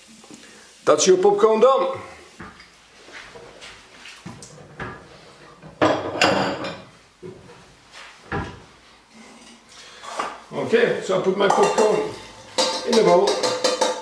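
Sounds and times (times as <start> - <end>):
crockery clattering: 5.6 - 6.9, 11.4 - 14.0.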